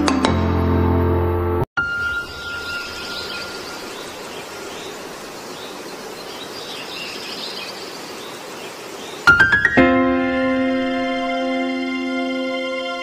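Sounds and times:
faint bird chirps: 1.8 - 9.3
steady background hiss: 2.2 - 9.7.

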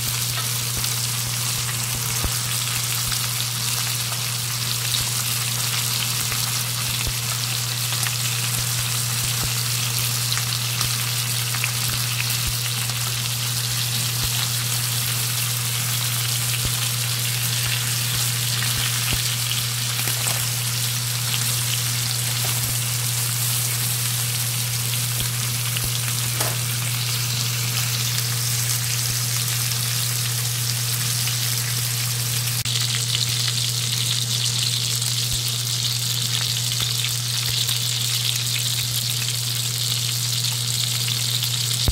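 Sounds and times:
meat sizzling in a pan: 0.0 - 41.9
steady low hum: 4.4 - 34.2.

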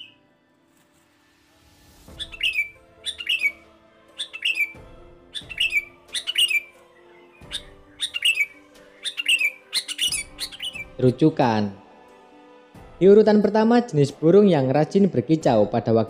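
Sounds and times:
bird whistling song: 0.0 - 0.2, 2.1 - 11.0.

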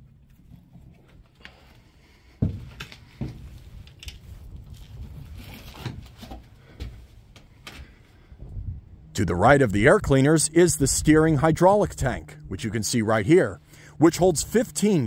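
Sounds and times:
low rumble: 8.2 - 12.8.

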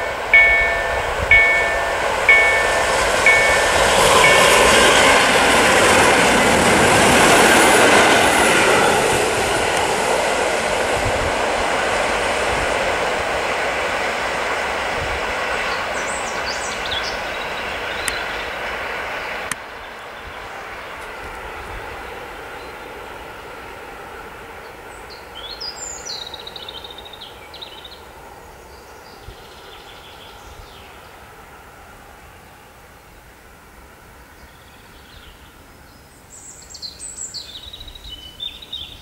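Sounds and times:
level crossing warning bell: 0.0 - 6.9
electric train passing: 0.0 - 39.0.

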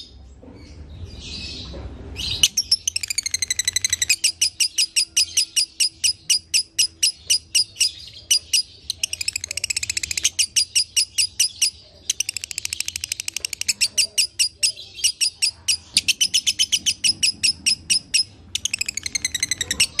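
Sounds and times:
lovebird chirping and trilling: 0.6 - 20.0.

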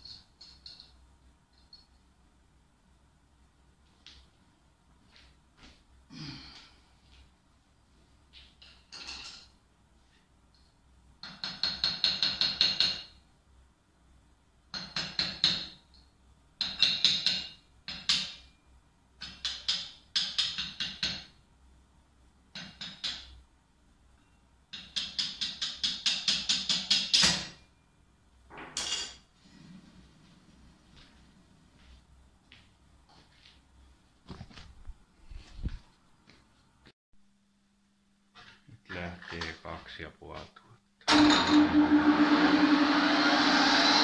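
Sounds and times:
hammer tapping on metal: 11.2 - 13.1, 19.2 - 21.3, 22.5 - 23.4, 24.7 - 27.4.

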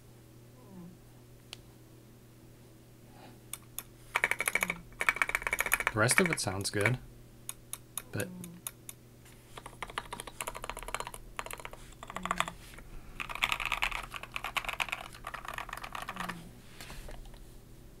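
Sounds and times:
mechanical keyboard typing: 4.1 - 7.0, 9.6 - 12.6, 13.2 - 16.4.

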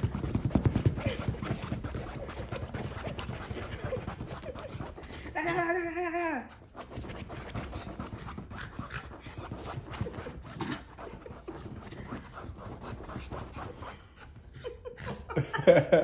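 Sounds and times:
rustling on fabric couch: 0.0 - 5.9, 6.5 - 14.4
dog panting: 0.0 - 15.4.

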